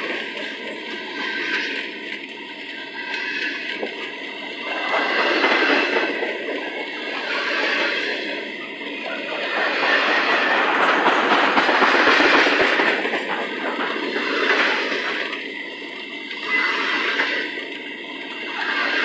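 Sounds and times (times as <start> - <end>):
freight train wheels on rails: 0.0 - 19.0.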